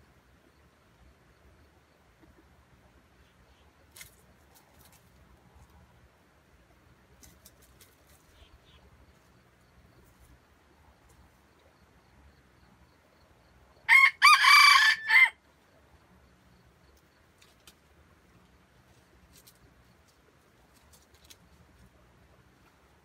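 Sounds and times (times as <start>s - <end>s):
rooster crowing: 13.9s - 15.4s.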